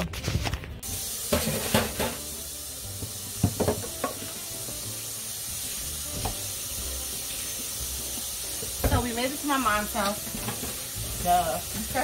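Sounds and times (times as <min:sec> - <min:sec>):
kitchen knocks and clinks: 0:01.3 - 0:02.3, 0:03.4 - 0:04.2.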